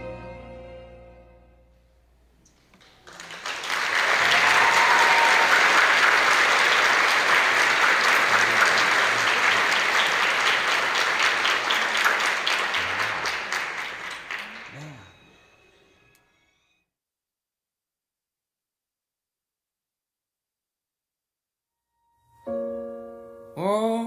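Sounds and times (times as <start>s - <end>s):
audience applauding: 2.8s - 15.2s.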